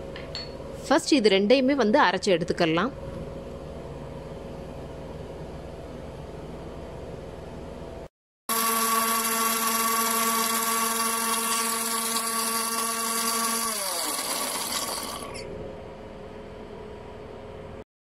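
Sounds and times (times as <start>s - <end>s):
mixer grinder motor whining: 8.5s - 15.5s.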